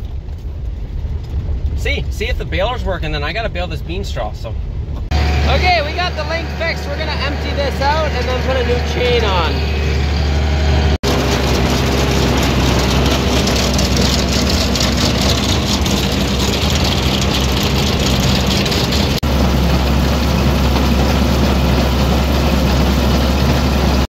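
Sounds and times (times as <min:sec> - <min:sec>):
tractor engine hum: 0:04.6 - 0:24.0
chain-driven conveyor running: 0:11.0 - 0:24.0
silage pouring into hopper: 0:11.0 - 0:24.0.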